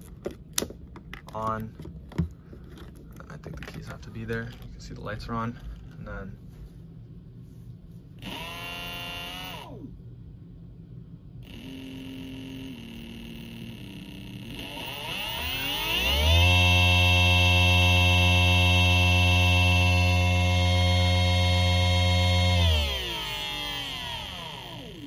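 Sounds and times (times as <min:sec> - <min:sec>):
electric motor whirring: 0:08.2 - 0:09.9, 0:11.4 - 0:25.0
high electric whine: 0:08.2 - 0:10.0, 0:11.4 - 0:25.0.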